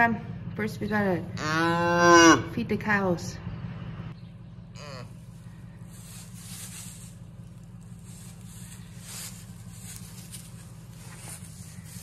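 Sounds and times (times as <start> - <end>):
steady low hum: 0.0 - 12.0
rustling of straw bedding: 4.9 - 12.0.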